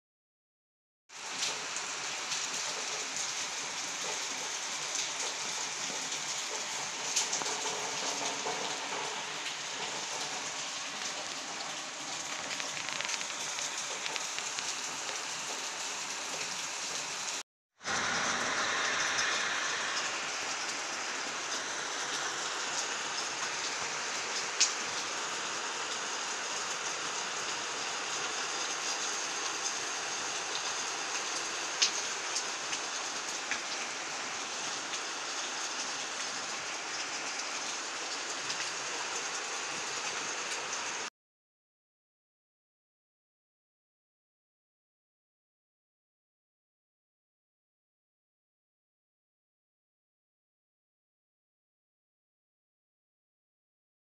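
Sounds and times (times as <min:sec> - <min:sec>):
heavy rain falling: 0:01.2 - 0:41.1.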